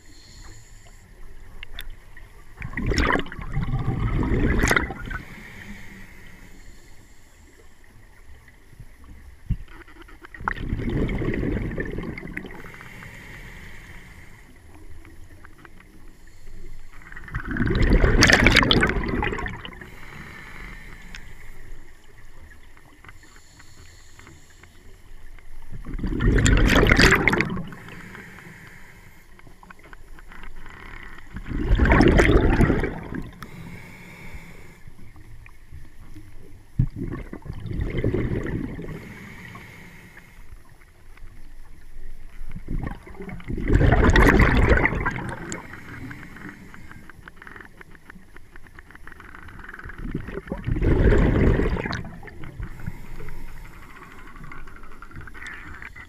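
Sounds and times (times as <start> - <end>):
hiss of inhaled air: 0.0 - 1.2, 5.0 - 7.7, 12.5 - 14.6, 19.8 - 21.9, 23.2 - 25.1, 27.6 - 29.4, 33.3 - 35.0, 38.8 - 40.6, 52.2 - 54.3
bubbly gurgles of exhaled air: 1.6 - 5.9, 9.5 - 13.0, 17.0 - 20.1, 25.6 - 28.3, 31.2 - 33.6, 36.1 - 39.6, 42.3 - 47.0, 49.8 - 56.0.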